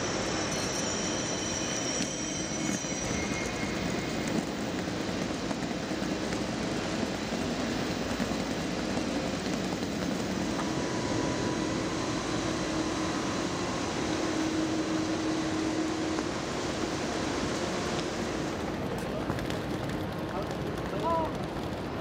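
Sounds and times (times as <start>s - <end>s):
station platform hum and hiss: 0.0s - 22.0s
faint steady tone: 9.7s - 18.7s.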